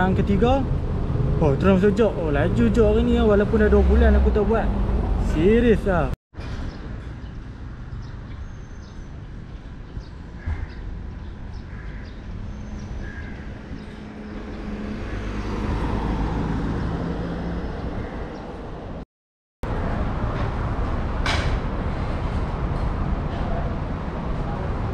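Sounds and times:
road traffic rumble: 0:00.0 - 0:19.0, 0:19.6 - 0:24.9
vehicle engine passing: 0:00.8 - 0:06.2, 0:13.6 - 0:19.0.

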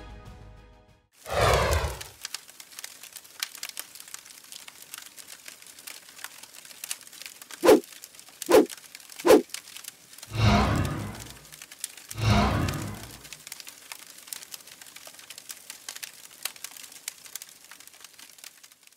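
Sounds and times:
fire crackling: 0:01.2 - 0:18.9
deep whoosh: 0:10.3 - 0:11.4, 0:12.2 - 0:13.2.

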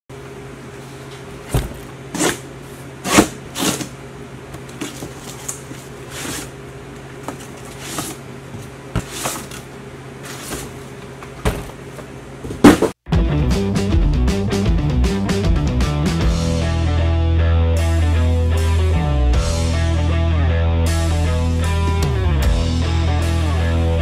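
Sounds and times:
cardboard rustling: 0:07.2 - 0:11.7.

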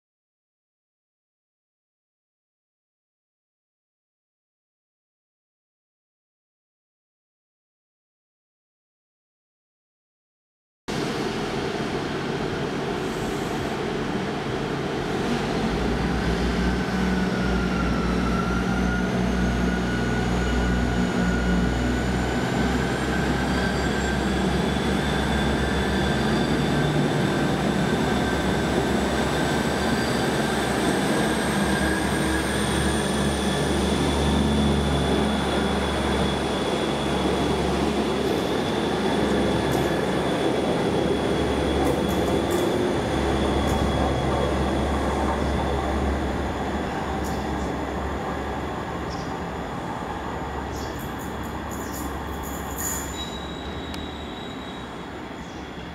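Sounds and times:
diesel train engine whining: 0:10.9 - 0:55.9.

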